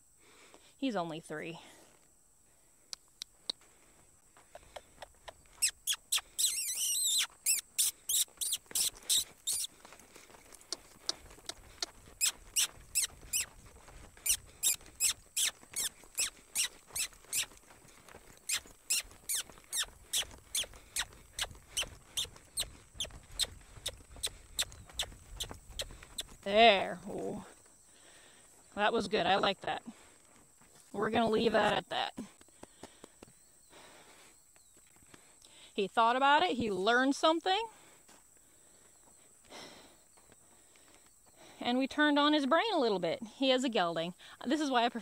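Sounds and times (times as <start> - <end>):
saddle and tack squeaking: 4.8 - 27.0.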